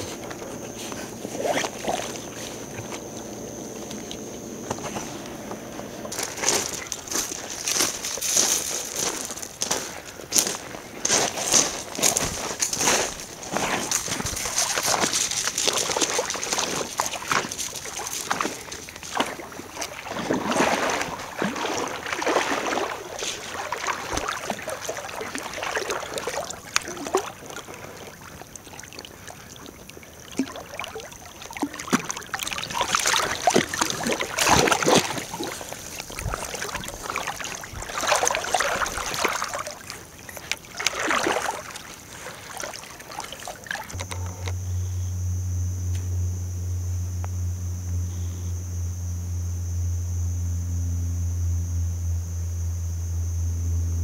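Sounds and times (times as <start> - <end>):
crunching on gravel: 0.0 - 25.3, 32.3 - 43.0
water splashing and sloshing: 0.0 - 44.5.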